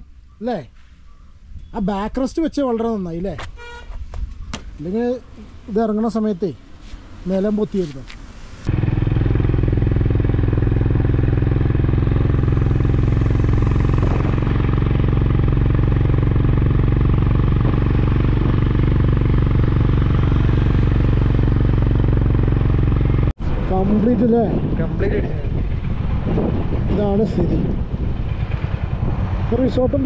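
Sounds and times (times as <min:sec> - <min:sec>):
road and wind noise: 0:00.0 - 0:30.0
motorcycle engine running: 0:08.7 - 0:23.4, 0:25.6 - 0:30.0.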